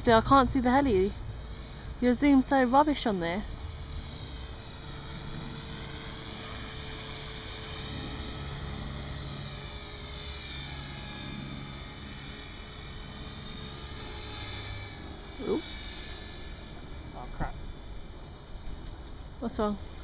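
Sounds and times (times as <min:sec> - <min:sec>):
low rotor hum: 0:00.0 - 0:20.0
rc helicopter whine: 0:00.0 - 0:20.0.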